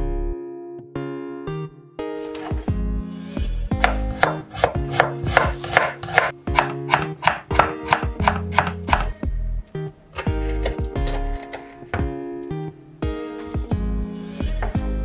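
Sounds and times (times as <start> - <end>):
knife chopping on wooden board: 3.8 - 9.1.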